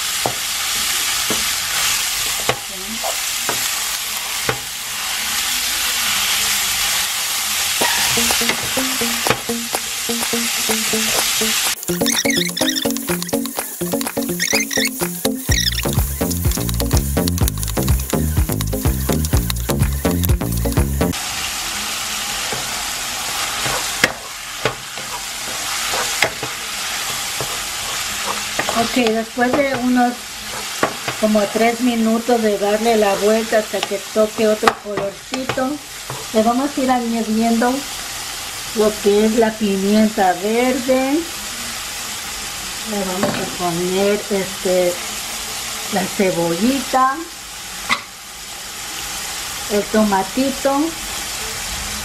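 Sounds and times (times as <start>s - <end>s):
meat sizzling in a pan: 0.0s - 52.0s
wooden spoon knocking pot: 8.1s - 10.4s, 26.2s - 30.0s, 30.8s - 31.2s
background music: 8.2s - 21.2s
wooden spoon scraping a pan: 22.5s - 31.7s.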